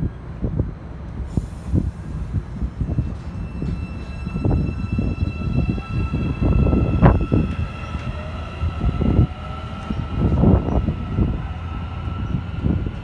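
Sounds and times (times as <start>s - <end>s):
train wheels rumbling on rails: 0.0s - 13.0s.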